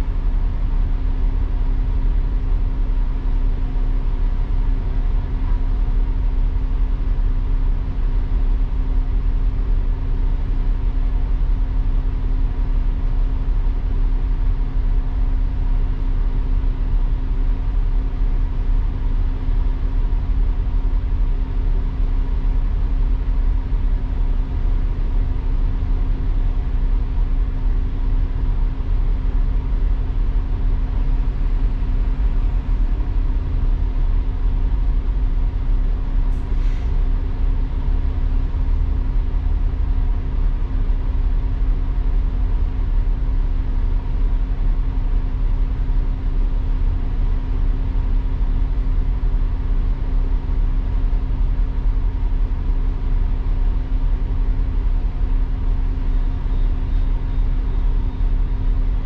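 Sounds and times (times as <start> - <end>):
steady hum: 0.0 - 59.0
bus engine rumble: 27.8 - 42.8.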